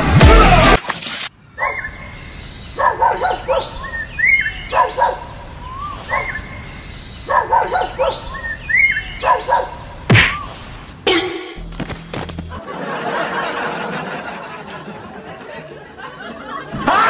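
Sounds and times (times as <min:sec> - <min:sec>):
dog barking: 0:01.6 - 0:01.9, 0:02.8 - 0:04.0, 0:04.6 - 0:05.3, 0:06.0 - 0:06.4, 0:07.2 - 0:08.5, 0:09.2 - 0:09.8
dog yelping: 0:01.6 - 0:02.0, 0:02.8 - 0:06.5, 0:07.3 - 0:10.4.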